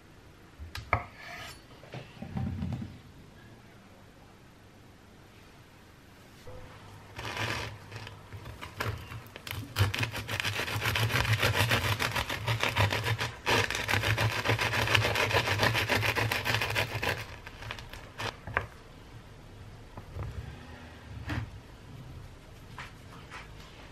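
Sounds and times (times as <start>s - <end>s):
bread knife sawing crust: 7.2s - 18.4s.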